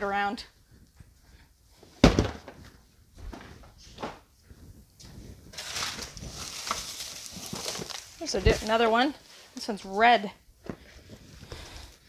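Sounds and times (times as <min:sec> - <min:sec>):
knocks on cardboard boxes: 0:02.0 - 0:02.6
cardboard scraping and rustling: 0:05.5 - 0:08.8.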